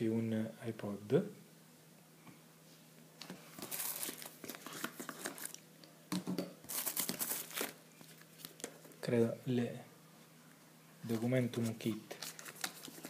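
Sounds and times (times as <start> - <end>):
packaging crinkling: 3.2 - 5.6, 6.6 - 9.0, 12.1 - 13.0.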